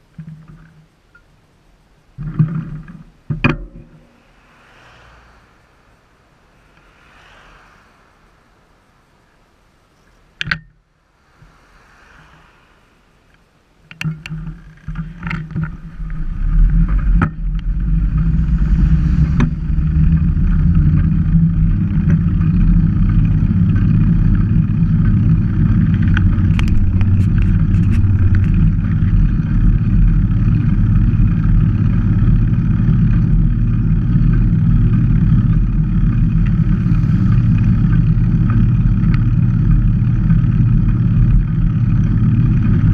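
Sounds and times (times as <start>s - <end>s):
bicycle tyre noise: 2.3s - 42.9s
wind noise on microphone: 13.9s - 42.9s.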